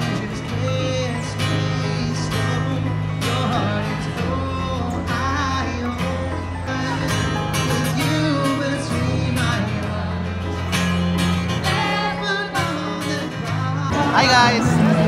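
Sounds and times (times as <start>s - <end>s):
guitar playing: 0.0s - 15.0s.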